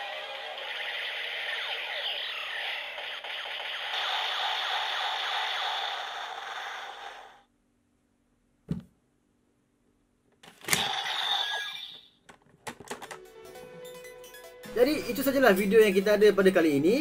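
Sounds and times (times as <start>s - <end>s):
toy belt electronic sound effect: 0.0s - 7.4s, 10.7s - 12.2s.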